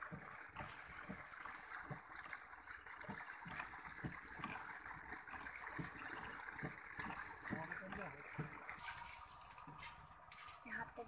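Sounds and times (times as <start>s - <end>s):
water trickling into a pond: 0.0s - 11.0s.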